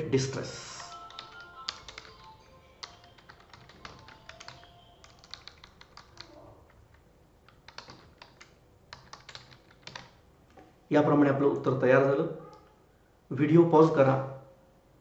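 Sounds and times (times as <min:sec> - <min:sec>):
typing on computer keyboard: 0:00.7 - 0:10.2.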